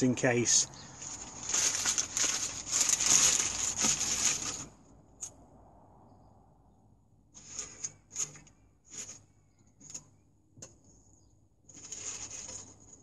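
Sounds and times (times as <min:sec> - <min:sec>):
newspaper rustling: 0:00.8 - 0:04.7.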